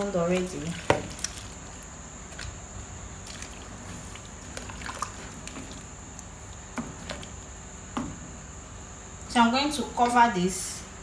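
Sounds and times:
thick soup sloshing: 0.0s - 7.6s
steady background noise: 0.0s - 11.0s.

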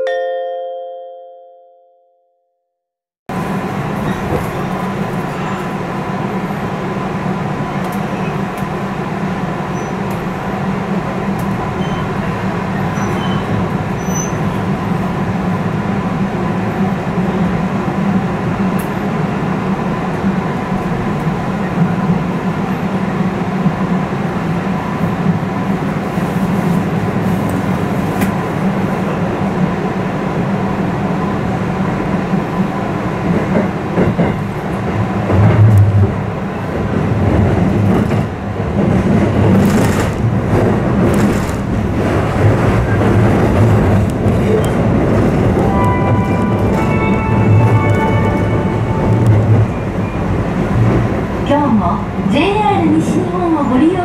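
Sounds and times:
electric train interior rumble: 3.3s - 54.0s.

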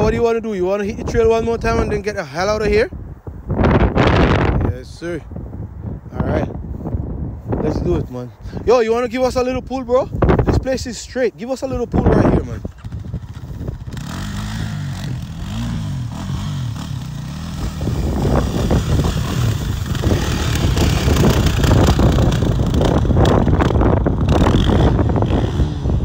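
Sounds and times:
dirt bike engines revving: 10.4s - 26.0s.

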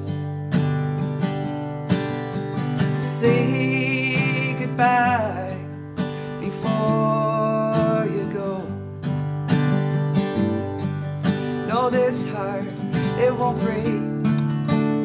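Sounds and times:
person singing: 0.0s - 0.4s, 2.6s - 8.9s, 11.4s - 15.0s
acoustic guitar strumming: 0.0s - 15.0s.

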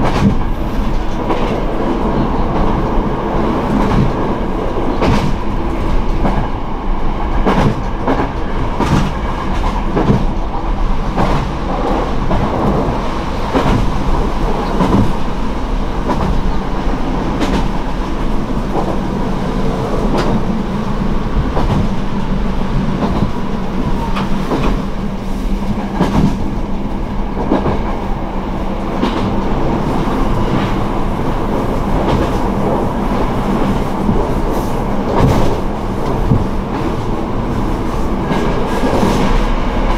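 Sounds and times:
wheels clacking over rail joints: 7.2s - 26.8s.

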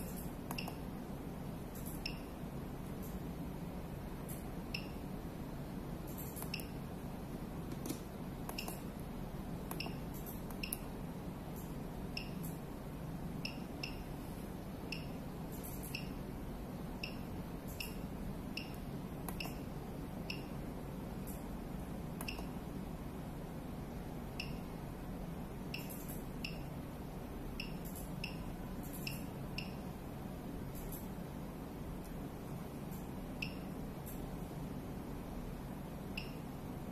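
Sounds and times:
steady low hum: 0.0s - 36.9s
high electronic key beeps: 1.7s - 2.4s, 4.3s - 5.0s, 6.0s - 6.8s, 9.7s - 10.9s, 11.6s - 12.6s, 13.4s - 14.2s, 14.9s - 16.2s, 17.0s - 20.6s, 24.4s - 24.7s, 25.7s - 26.7s, 27.6s - 29.9s, 32.9s - 34.2s, 36.1s - 36.4s.

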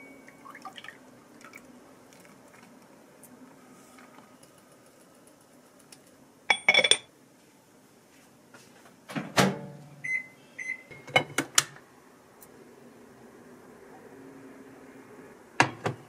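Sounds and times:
cooktop beeps: 0.0s - 0.6s.

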